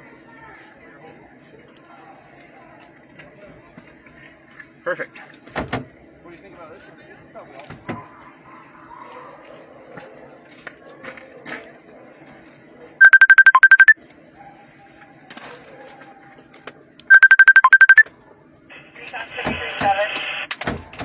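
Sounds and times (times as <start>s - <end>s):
telephone ringing: 13.0s - 14.0s, 17.1s - 18.0s.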